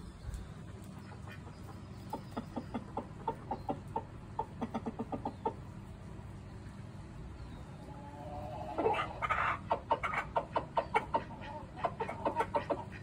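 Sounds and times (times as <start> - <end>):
rooster clucking: 0.7 - 5.8, 8.0 - 13.0.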